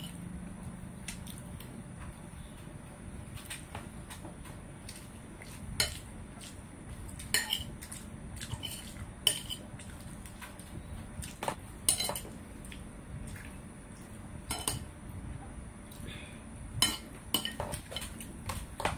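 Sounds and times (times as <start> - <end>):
cutlery clinking on a plate: 7.4 - 7.7, 11.9 - 12.3, 16.8 - 18.2.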